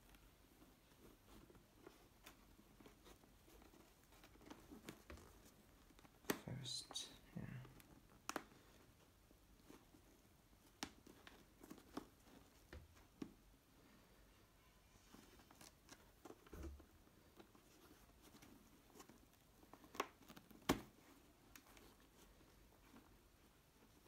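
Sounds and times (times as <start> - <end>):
light taps and clicks on helmet: 7.7 - 8.8.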